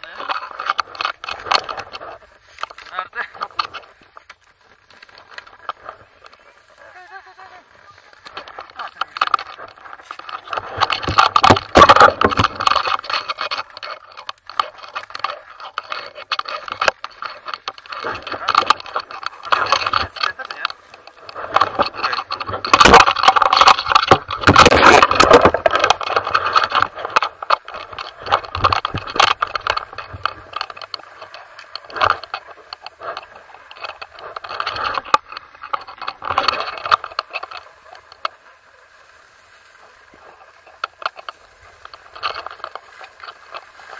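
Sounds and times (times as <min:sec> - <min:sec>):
camera rattling and knocking: 0:00.0 - 0:38.6, 0:39.7 - 0:43.9
skis swishing through powder snow: 0:04.0 - 0:09.2.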